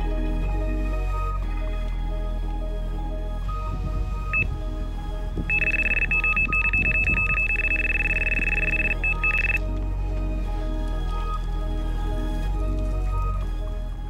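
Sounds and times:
background music: 0.0s - 14.0s
electronic bite alarm beeping: 4.3s - 4.5s, 5.5s - 9.6s.

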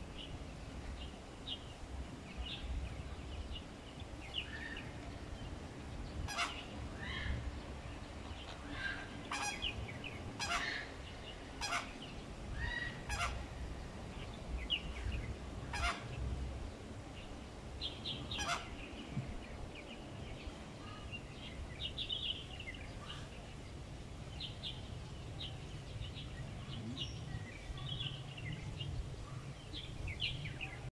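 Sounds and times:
flamingos honking: 6.3s - 7.2s, 8.5s - 13.6s, 15.6s - 16.2s, 18.3s - 18.9s.

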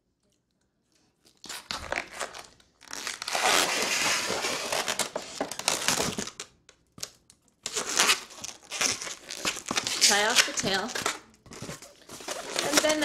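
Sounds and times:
balloon rubber rubbing and crinkling: 1.5s - 6.1s, 7.7s - 13.0s.

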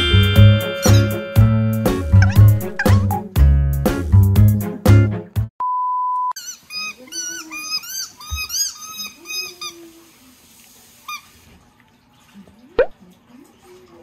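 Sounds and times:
squeaky ball squeaking: 2.2s - 3.2s, 6.4s - 9.7s.

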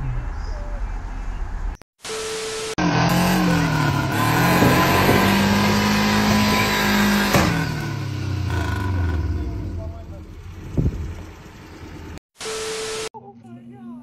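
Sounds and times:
car engine revving hard: 2.8s - 9.8s.

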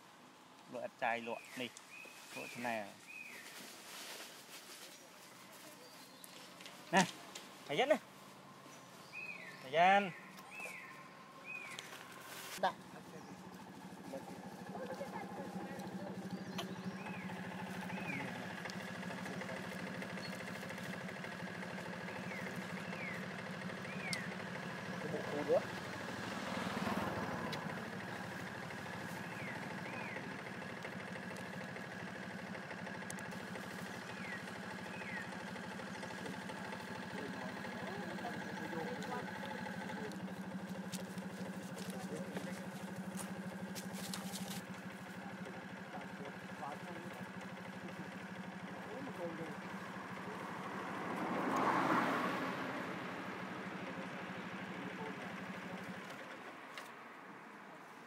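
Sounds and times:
engine idling: 6.2s - 58.0s
light ticks: 18.6s - 18.8s.

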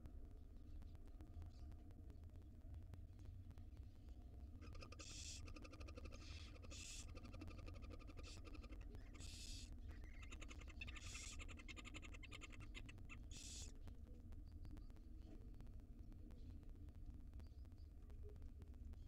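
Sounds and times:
owl nestlings chittering: 5.0s - 13.7s
owl nestlings hissing: 10.4s - 13.7s.

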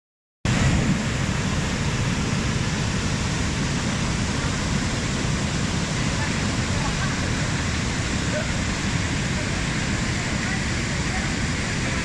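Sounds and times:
waterfall rushing: 0.5s - 12.0s.

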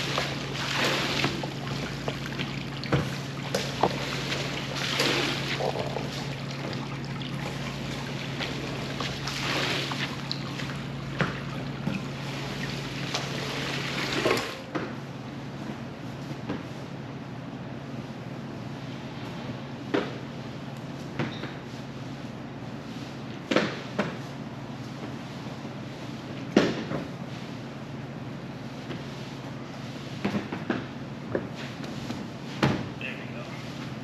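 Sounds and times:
water swishing over wet rug: 0.0s - 14.6s
motor hum: 0.0s - 14.8s.

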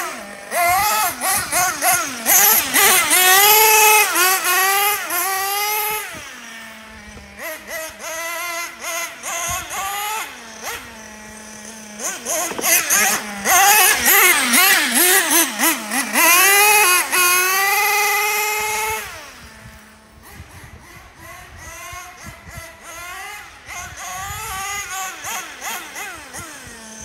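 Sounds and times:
toy truck engine revving: 0.0s - 27.0s.

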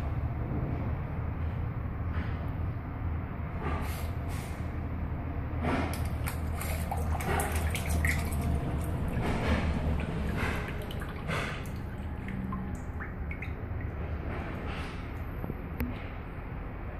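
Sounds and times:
steady low hum: 0.0s - 16.9s
water splashing and dripping: 5.7s - 15.3s.

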